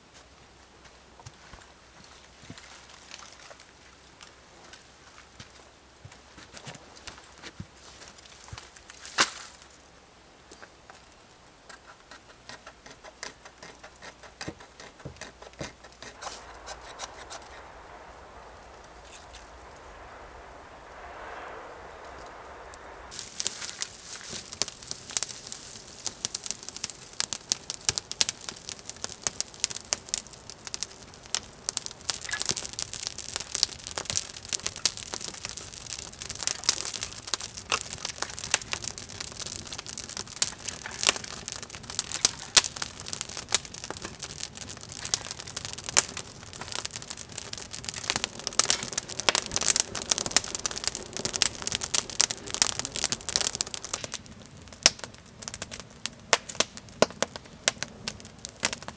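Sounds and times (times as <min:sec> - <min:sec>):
campfire crackling: 0:00.2 - 0:58.9.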